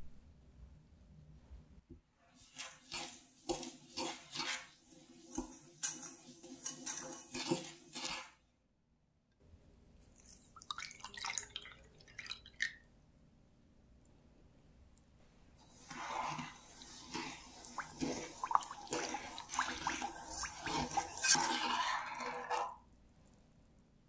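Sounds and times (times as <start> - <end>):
whisk scraping in saucepan: 2.4 - 8.4, 15.6 - 22.9
juice pouring and splashing: 10.0 - 12.9, 15.6 - 23.5.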